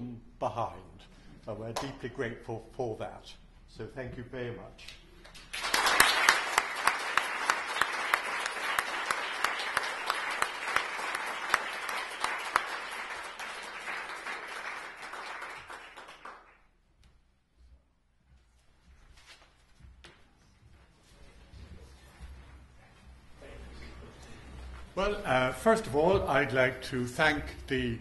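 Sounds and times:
audience applauding: 5.4s - 16.6s
person clapping: 5.6s - 16.5s.

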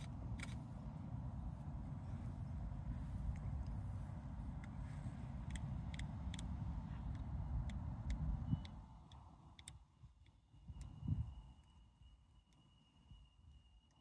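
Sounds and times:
diesel train rumble: 0.0s - 8.7s
sharp ticks: 5.4s - 11.0s
high brake squeal: 10.6s - 14.0s.

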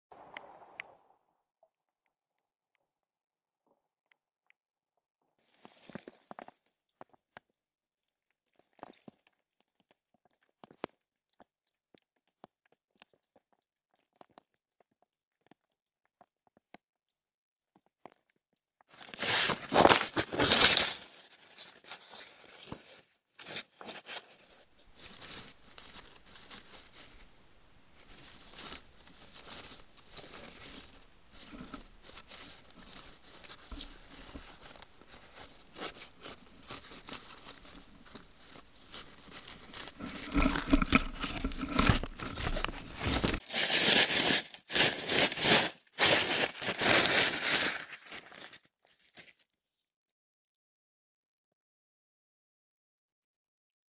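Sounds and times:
hedgehog rustling newspaper: 19.0s - 49.2s.

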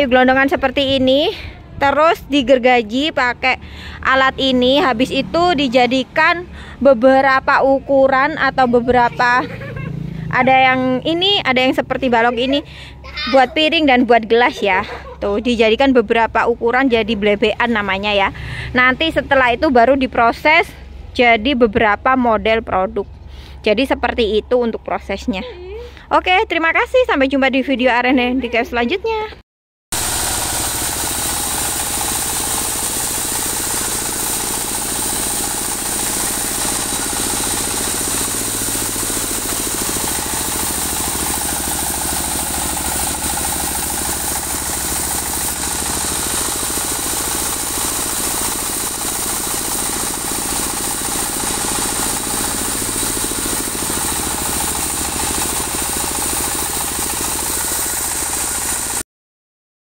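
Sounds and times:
engine-driven band sawmill running: 0.0s - 15.2s, 17.2s - 19.9s, 29.9s - 59.0s.

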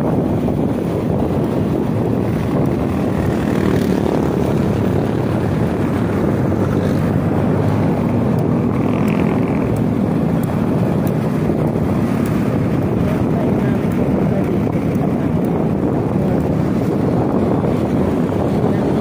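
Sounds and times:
motorcycle engine drone: 0.0s - 19.0s
wind on microphone: 0.0s - 19.0s.

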